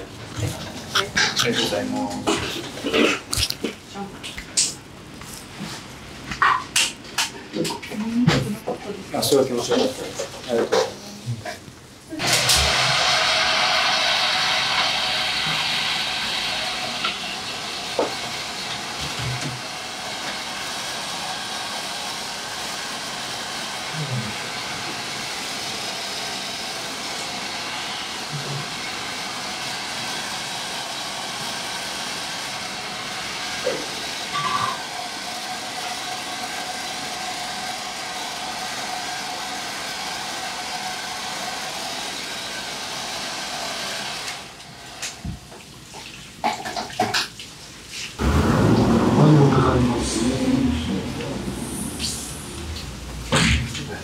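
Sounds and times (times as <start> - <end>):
hair dryer blowing: 12.2 - 45.4, 48.2 - 53.4.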